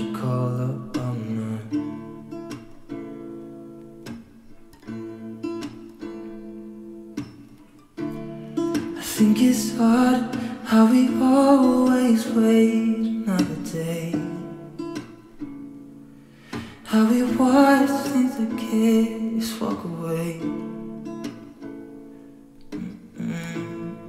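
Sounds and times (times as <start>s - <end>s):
person singing: 0.0s - 2.0s, 8.9s - 14.8s, 16.6s - 20.7s, 22.7s - 24.0s
pop song with acoustic guitar: 0.0s - 24.0s.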